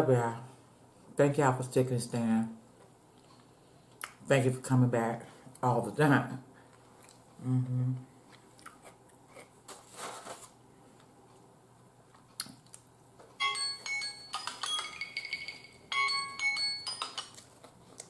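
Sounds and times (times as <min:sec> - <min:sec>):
marimba-like alarm ringtone: 0:13.4 - 0:17.4.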